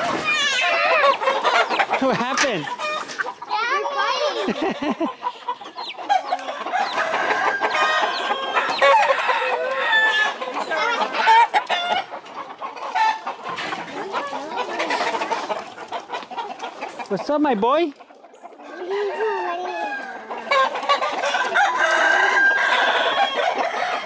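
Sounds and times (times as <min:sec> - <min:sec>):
chickens clucking: 0:00.0 - 0:24.0
rooster crowing: 0:06.6 - 0:10.4, 0:18.8 - 0:20.7, 0:21.3 - 0:24.0.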